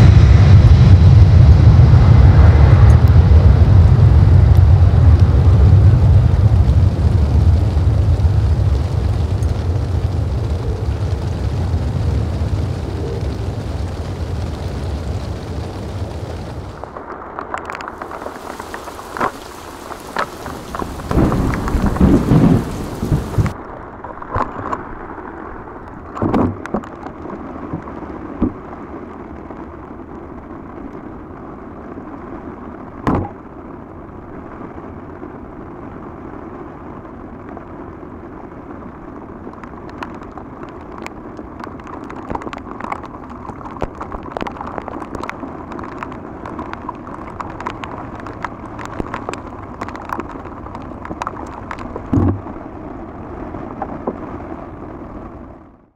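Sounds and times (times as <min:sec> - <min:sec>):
jet engine noise: 0:00.0 - 0:26.2
rain: 0:00.0 - 0:55.9
scattered knocks and bumps: 0:51.0 - 0:52.5.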